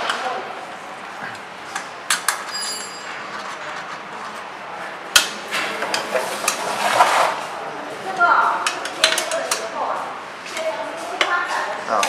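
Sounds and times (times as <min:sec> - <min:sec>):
high metallic ring: 0:02.5 - 0:03.3.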